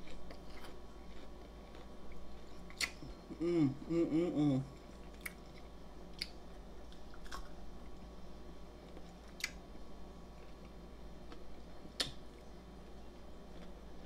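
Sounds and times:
person chewing food: 0:00.0 - 0:07.6, 0:13.5 - 0:14.0
person humming: 0:03.0 - 0:04.8.

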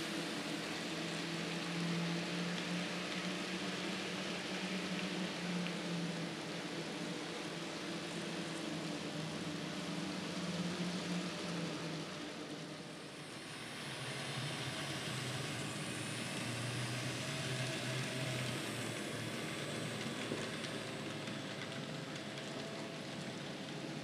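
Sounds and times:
wheels rolling on track: 0:00.0 - 0:24.0.

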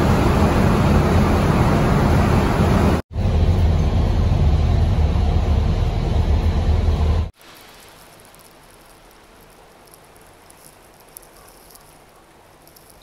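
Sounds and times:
bus engine and road rumble: 0:00.0 - 0:07.4.

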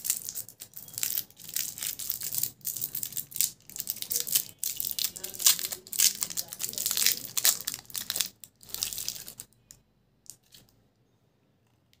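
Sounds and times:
foil wrapper crinkling and tearing: 0:00.0 - 0:09.6.

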